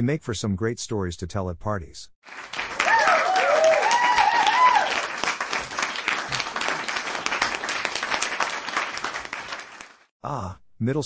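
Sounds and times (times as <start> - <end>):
audience applause: 2.2 - 10.1.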